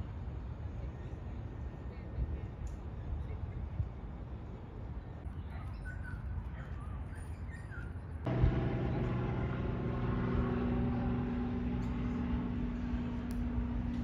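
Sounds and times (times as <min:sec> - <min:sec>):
steady engine hum: 0:08.1 - 0:14.0
low rumble: 0:08.3 - 0:14.0.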